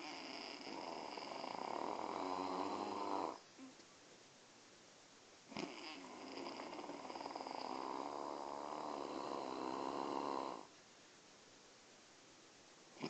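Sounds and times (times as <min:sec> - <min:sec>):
person snoring: 0:00.0 - 0:03.4, 0:05.5 - 0:10.7.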